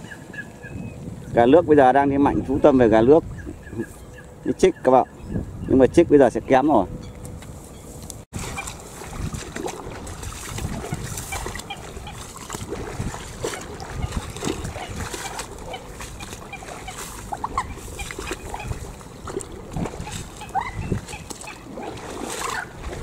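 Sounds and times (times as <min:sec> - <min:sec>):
wind: 0:00.0 - 0:23.0
water splashes: 0:08.3 - 0:23.0.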